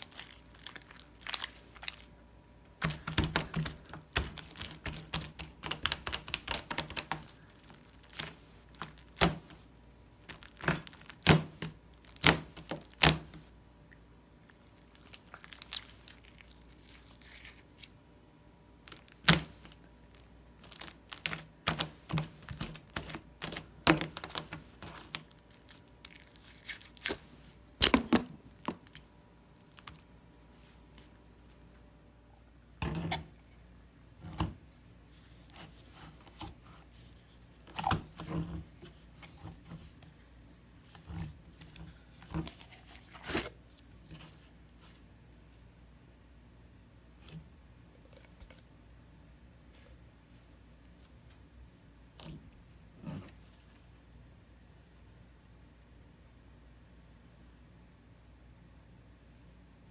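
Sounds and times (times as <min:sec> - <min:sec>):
sticky slime squishing: 0:00.0 - 0:18.0, 0:18.8 - 0:30.1.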